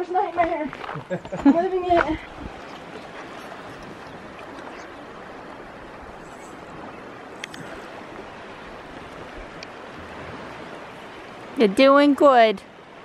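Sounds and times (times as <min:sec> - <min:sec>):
river current rushing: 0:00.0 - 0:13.0
faint click: 0:07.4 - 0:07.7.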